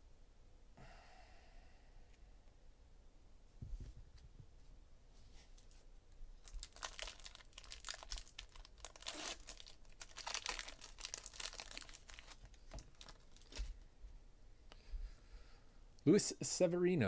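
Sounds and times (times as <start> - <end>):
foil wrapper tearing and crinkling: 6.4 - 13.7.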